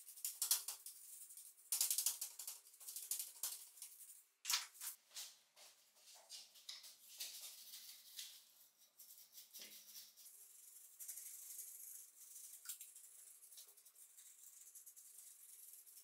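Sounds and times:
brush scrubbing metal: 7.3 - 16.0.

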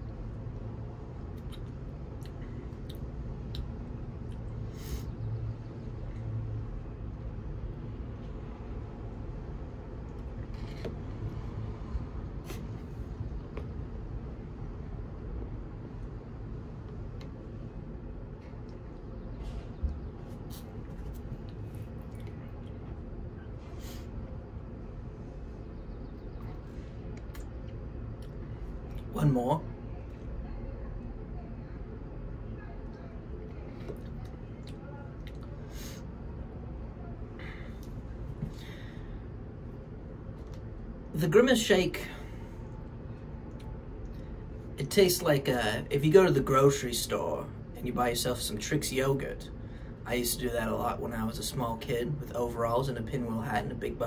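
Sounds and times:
low outdoor rumble: 0.0 - 54.0
faint short hisses: 4.7 - 5.2
mouth clicks: 27.2 - 27.6.

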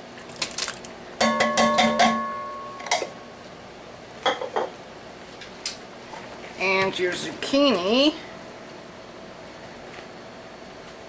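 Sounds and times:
metal can knocking on pot rim: 1.2 - 2.3.

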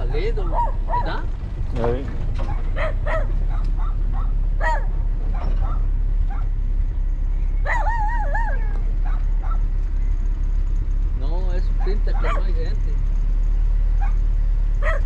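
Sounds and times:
low rumble: 0.0 - 15.0
animal yelps: 0.4 - 1.3, 2.5 - 6.5, 7.6 - 9.7, 12.0 - 12.5.

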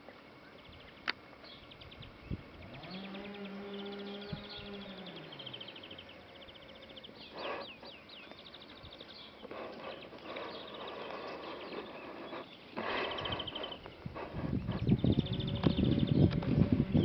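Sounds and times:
fast rattling trills: 2.5 - 17.0
cow lowing: 2.7 - 8.0
rustling: 7.2 - 14.9.

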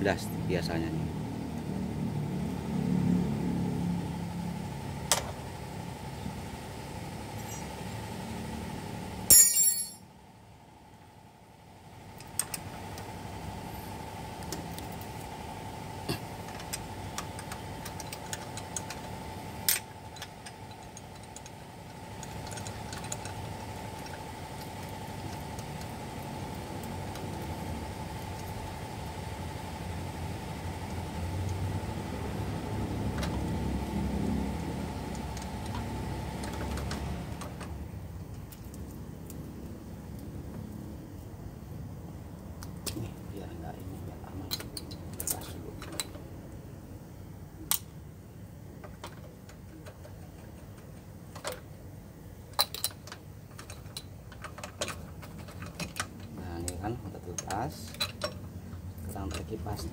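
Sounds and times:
engine hum: 0.0 - 59.9
wrench clinking on metal: 9.3 - 10.1.

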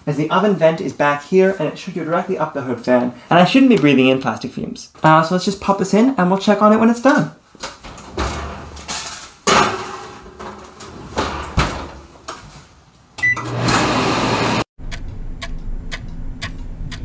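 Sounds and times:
oven door banging shut: 7.8 - 12.4
baking pan sliding into oven: 7.9 - 12.2
button beep: 13.2 - 13.4
clock ticking: 14.9 - 17.0.

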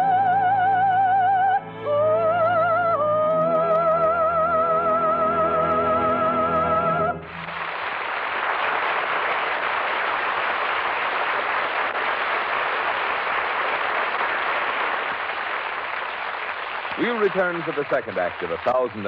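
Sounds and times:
audience applause: 7.2 - 19.0.

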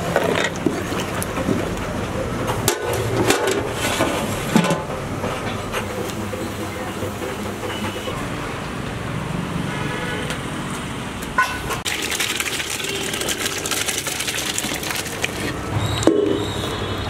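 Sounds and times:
thick liquid pouring: 11.8 - 15.7.

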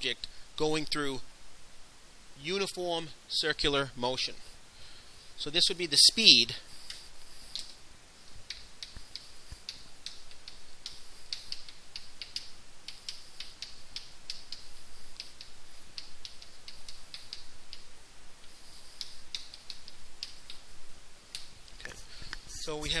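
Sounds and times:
chalk writing on blackboard: 6.6 - 7.8, 8.5 - 17.8, 18.4 - 20.5.

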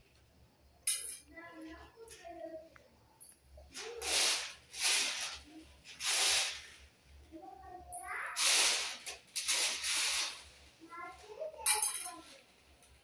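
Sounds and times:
chickpeas rattling on metal tray: 8.0 - 10.4.

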